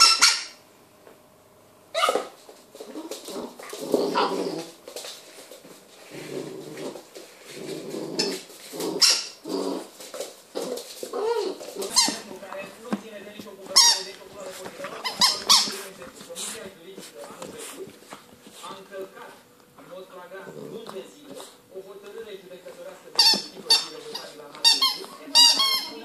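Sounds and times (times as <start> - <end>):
squeaky toy squeaks: 0.0 - 0.6, 15.0 - 15.7, 23.2 - 26.0
puppy barking: 1.9 - 2.4
puppy growling: 2.9 - 4.9, 6.0 - 12.7, 20.3 - 21.6.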